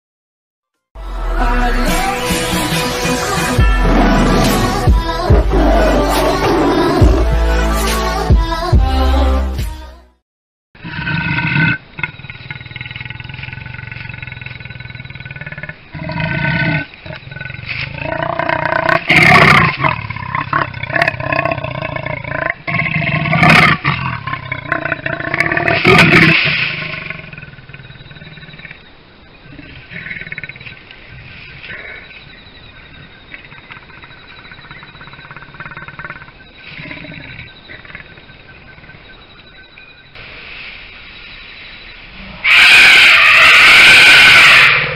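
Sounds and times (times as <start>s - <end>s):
leopard growling and snarling: 3.8s - 7.3s, 10.8s - 30.8s, 33.3s - 38.4s.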